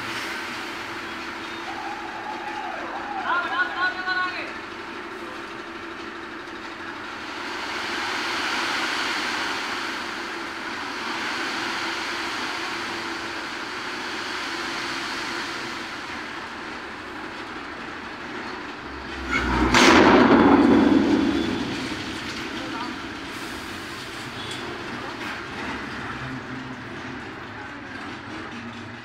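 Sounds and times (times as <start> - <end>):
engine hum: 0.0 - 29.0
sand pouring rushing hiss: 7.1 - 16.4
loud rumbling surge: 14.2 - 25.9.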